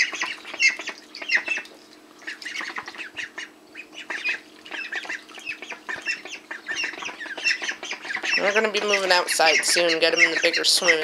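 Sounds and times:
light water splashing: 0:00.0 - 0:08.4
ducklings quacking: 0:00.0 - 0:11.0.

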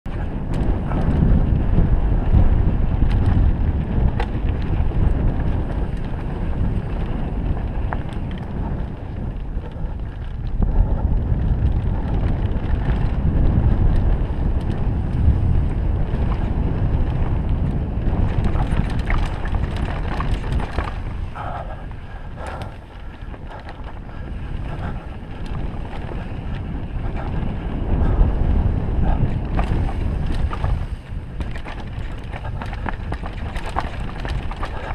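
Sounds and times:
wind buffeting microphone: 0:00.0 - 0:34.9
bike clicks and rattles: 0:00.1 - 0:34.9
tyres rolling over dirt and stones: 0:11.2 - 0:21.5, 0:29.3 - 0:34.9.

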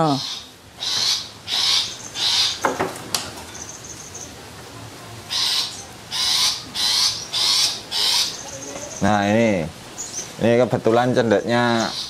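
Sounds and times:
bird giving harsh rasping calls: 0:00.0 - 0:02.9, 0:05.2 - 0:10.4, 0:11.4 - 0:12.0.

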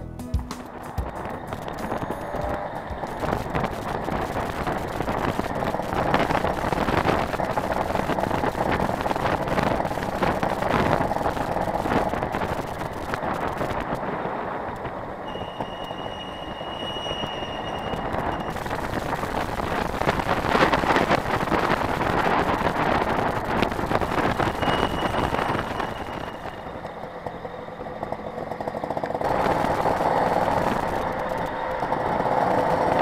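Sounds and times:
moped two-stroke engine running: 0:00.4 - 0:14.0, 0:18.0 - 0:33.0
wind rushing over microphone: 0:00.7 - 0:26.8
thin high whistle: 0:15.2 - 0:18.6, 0:24.4 - 0:26.8.

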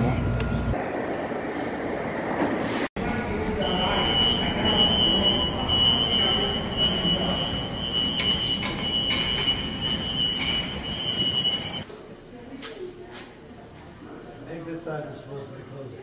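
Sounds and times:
subway wheel squeal: 0:03.5 - 0:11.8.

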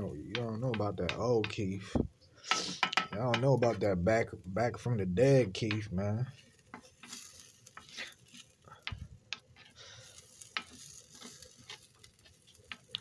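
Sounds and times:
rice sizzling in a pan: 0:00.0 - 0:13.0
spatula scraping pan: 0:02.4 - 0:03.8, 0:05.2 - 0:13.0.

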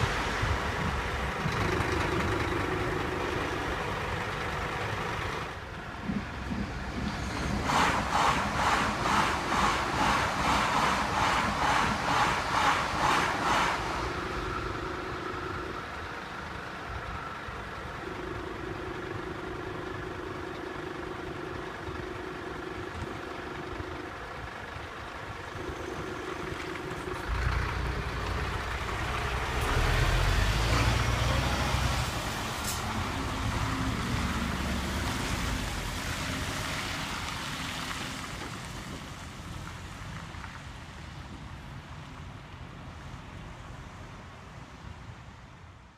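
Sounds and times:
low engine rumble: 0:00.0 - 0:45.8
car engines idling: 0:00.0 - 0:45.9
tyre hiss on wet road: 0:07.2 - 0:14.9, 0:29.1 - 0:42.0.

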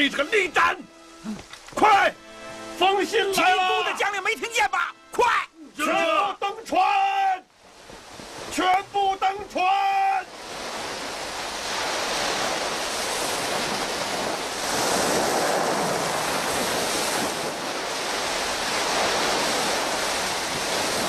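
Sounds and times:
strong wind: 0:06.9 - 0:21.0
surf crashing on beach: 0:07.0 - 0:21.0.

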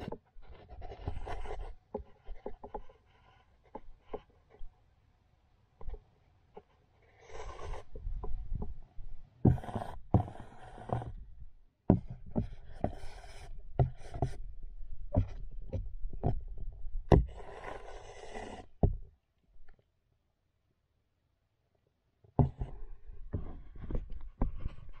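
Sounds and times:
claws scraping camera underwater: 0:00.0 - 0:04.7, 0:06.6 - 0:08.8, 0:09.4 - 0:11.4, 0:12.1 - 0:19.0, 0:22.4 - 0:25.0.

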